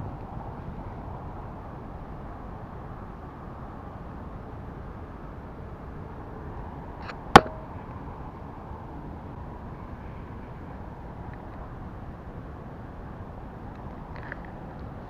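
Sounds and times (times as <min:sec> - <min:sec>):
sharp click: 0:07.4 - 0:07.6.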